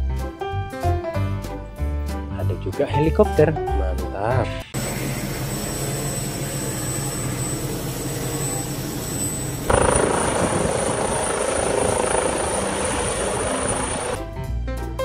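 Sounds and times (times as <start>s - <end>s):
helicopter engine and rotor: 4.8s - 14.2s
helicopter hovering with turbine whine: 4.8s - 14.2s.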